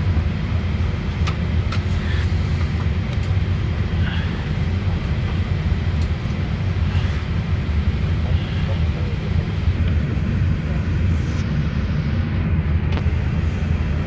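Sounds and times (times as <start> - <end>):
aircraft cabin rumble: 0.0 - 14.0.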